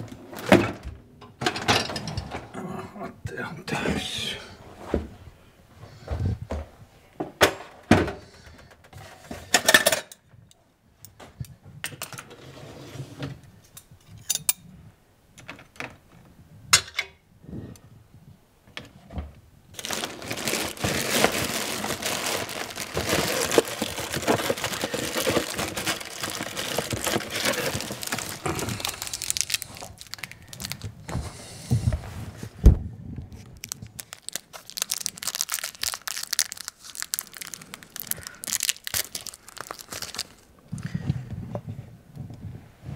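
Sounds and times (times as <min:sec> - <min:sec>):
plastic bags rustling: 0:19.7 - 0:31.3, 0:33.4 - 0:40.7.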